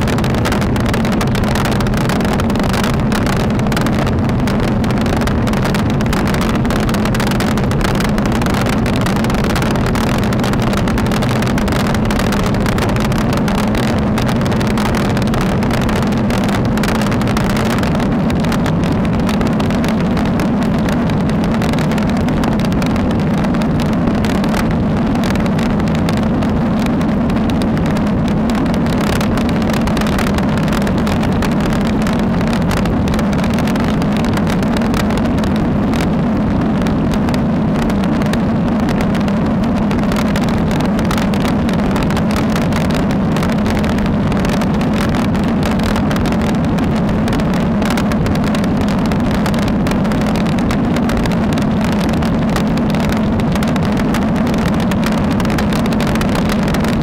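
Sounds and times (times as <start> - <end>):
low hum: 0.0 - 57.0
road rumble: 0.0 - 57.0.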